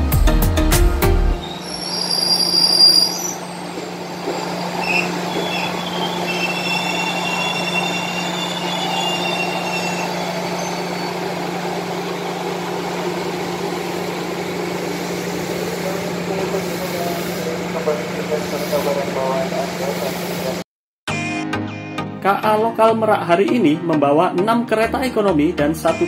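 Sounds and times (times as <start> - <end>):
train wheels squealing: 1.4 - 11.8.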